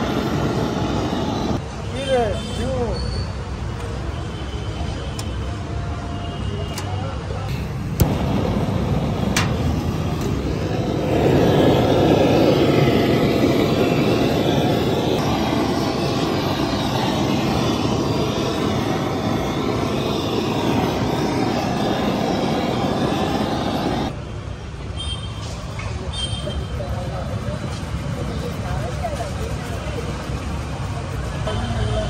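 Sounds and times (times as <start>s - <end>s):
gas blowtorch hissing: 0.0s - 2.9s, 6.6s - 24.2s.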